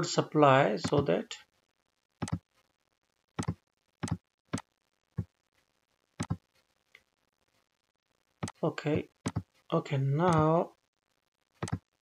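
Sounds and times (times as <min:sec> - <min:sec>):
computer mouse button clicks: 0:03.4 - 0:04.7, 0:11.6 - 0:11.8.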